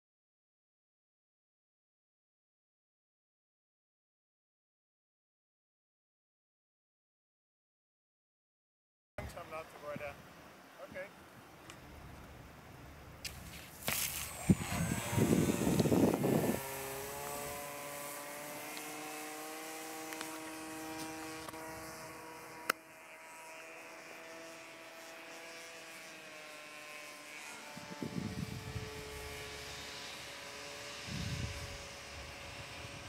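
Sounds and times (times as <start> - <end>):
model aircraft motor humming: 11.7 - 33.0.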